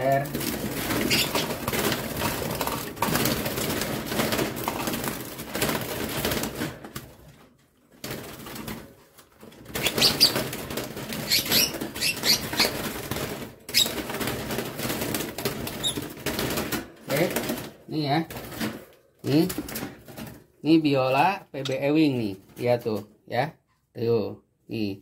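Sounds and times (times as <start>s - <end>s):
birds flapping wings in a cage: 0.0s - 20.5s.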